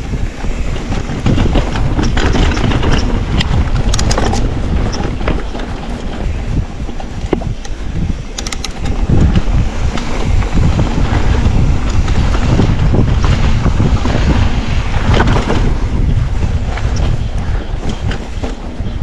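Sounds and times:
bike tyres rumbling on ground: 0:00.0 - 0:19.0
wind buffeting microphone: 0:00.0 - 0:19.0
sharp rattles: 0:00.1 - 0:10.4.

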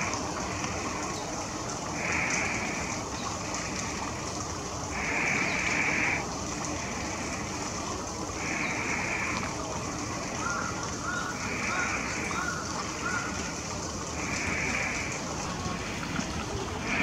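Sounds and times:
stream flowing: 0:00.0 - 0:17.0.

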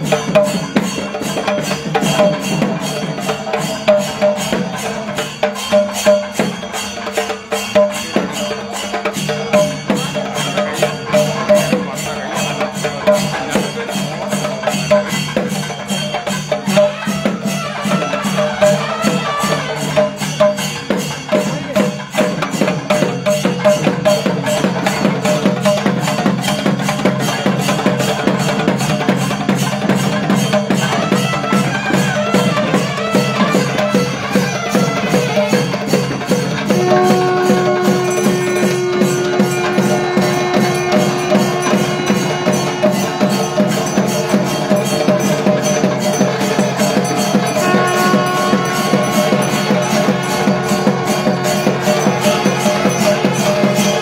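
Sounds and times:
percussion ensemble drumming: 0:00.0 - 0:54.0
loud long steady note: 0:36.5 - 0:54.0
low sustained tones: 0:36.6 - 0:54.0.

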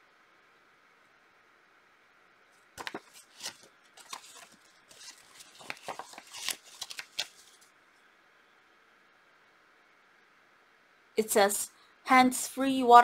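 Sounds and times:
paper leaflet rustling: 0:02.6 - 0:07.7.

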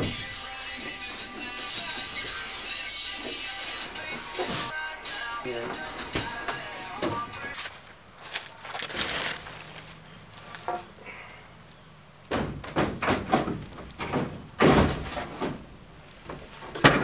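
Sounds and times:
wooden board thuds: 0:12.3 - 0:15.6.

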